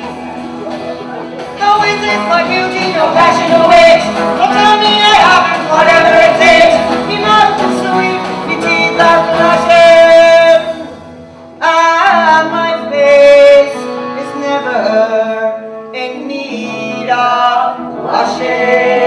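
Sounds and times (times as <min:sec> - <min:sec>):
instrumental accompaniment: 0:00.0 - 0:19.0
woman singing: 0:01.6 - 0:10.8.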